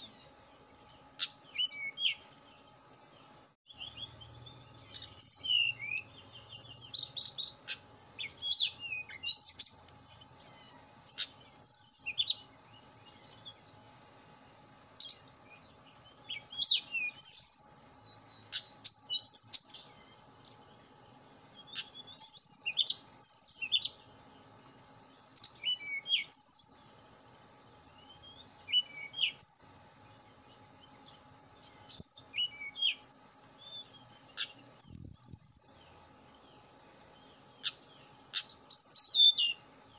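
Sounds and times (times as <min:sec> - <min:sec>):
bird singing whistled notes: 0:00.0 - 0:24.0, 0:25.0 - 0:26.8, 0:27.4 - 0:29.8, 0:30.5 - 0:39.9.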